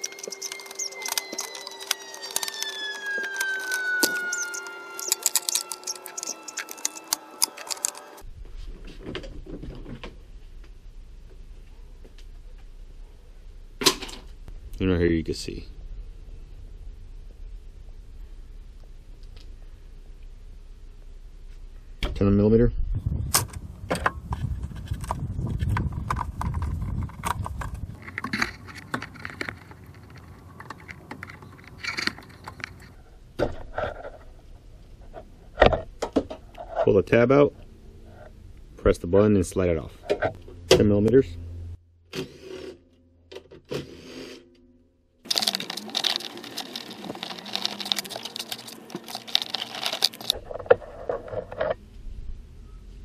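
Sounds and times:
handling noise: 0.0s - 10.6s, 23.4s - 36.8s, 45.2s - 51.8s
short scrape: 42.2s - 42.8s, 43.8s - 44.5s.

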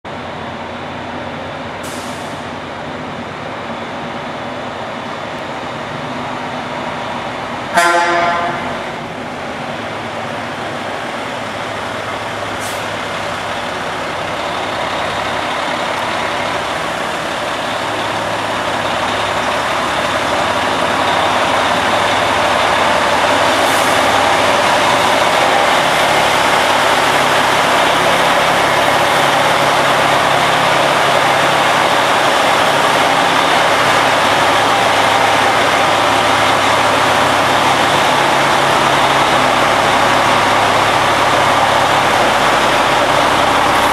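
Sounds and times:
diesel truck engine running: 0.1s - 43.9s
air-brake hiss: 1.8s - 2.5s, 12.6s - 13.0s, 23.5s - 24.2s.

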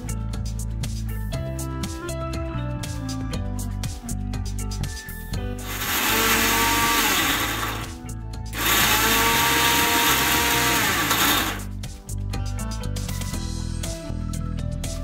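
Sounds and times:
mixer grinder whining: 5.6s - 8.0s, 8.6s - 11.7s.

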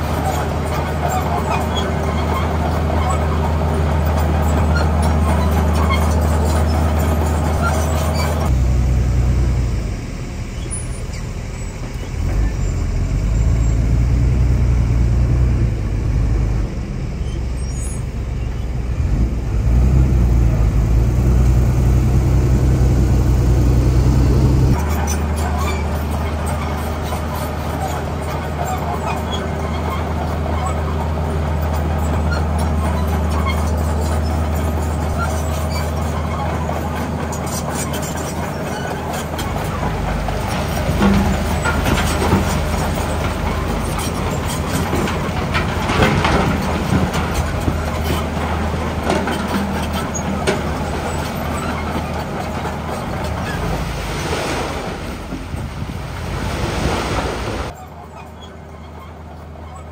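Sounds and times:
engine rattling and knocking: 0.0s - 8.7s, 19.2s - 53.9s
heavy diesel engine droning: 0.0s - 59.9s.

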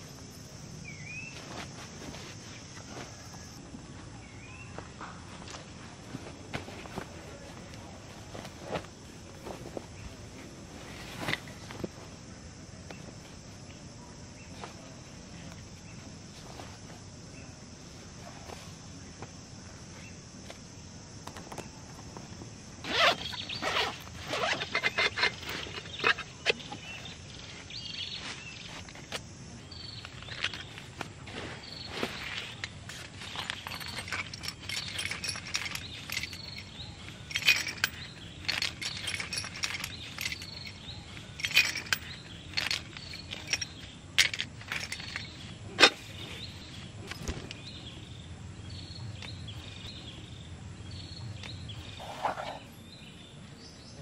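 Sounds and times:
cloth and leather rustling: 1.1s - 13.5s, 21.9s - 48.2s
metal tools clinking: 22.9s - 29.1s, 31.6s - 47.9s.

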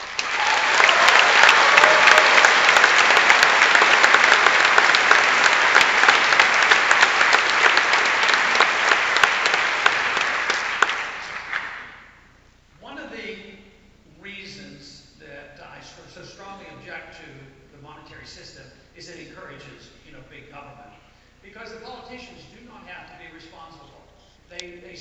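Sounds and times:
large audience applauding: 0.0s - 12.0s.

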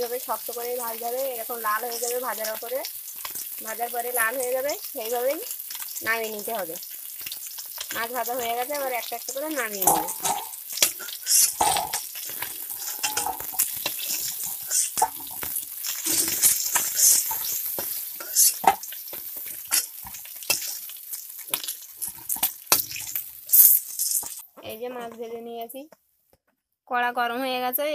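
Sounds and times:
fish sizzling in hot oil: 0.0s - 24.5s
spatula scraping and knocking pan: 9.6s - 23.2s.

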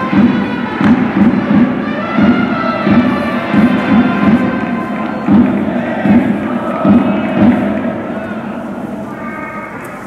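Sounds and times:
brass playing a fight song: 0.0s - 6.0s
steady drum beat: 0.0s - 8.1s.

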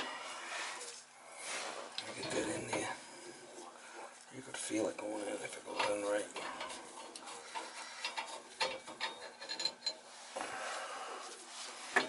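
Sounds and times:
metallic clicks and scraping: 5.6s - 10.0s.

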